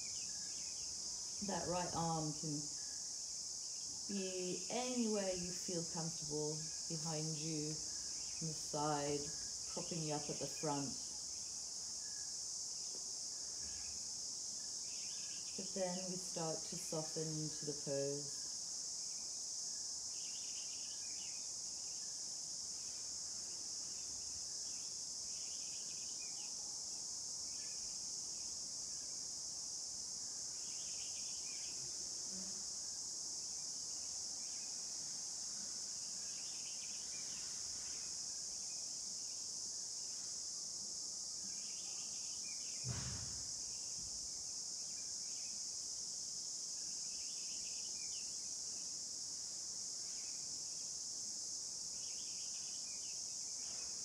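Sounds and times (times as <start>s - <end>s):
crickets chirping: 0.0s - 54.0s
dull thump: 42.8s - 43.5s.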